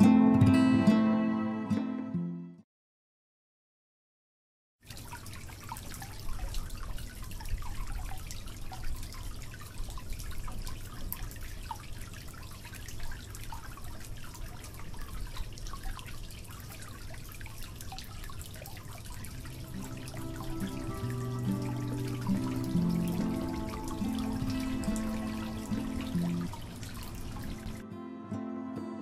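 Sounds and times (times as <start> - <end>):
water trickling into an aquarium: 4.8 - 27.8.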